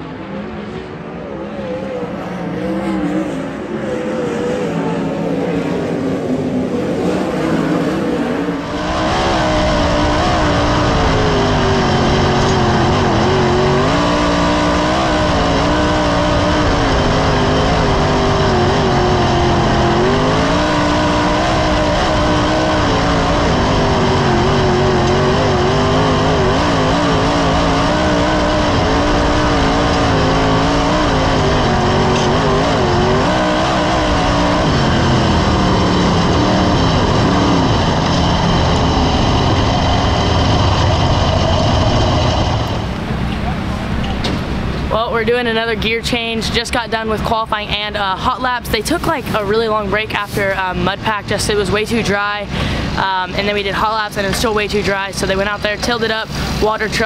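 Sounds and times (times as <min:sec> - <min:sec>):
distant race car engines: 0:00.0 - 0:57.0
race car engine revving: 0:00.0 - 0:57.0.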